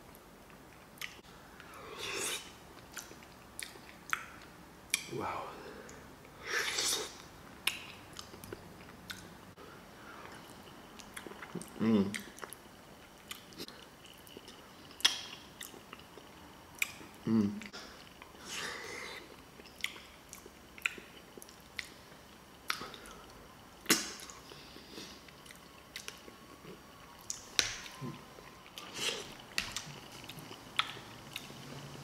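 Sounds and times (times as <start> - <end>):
close-miked chewing: 0.1 - 5.1, 6.8 - 32.0
person humming: 17.2 - 17.7.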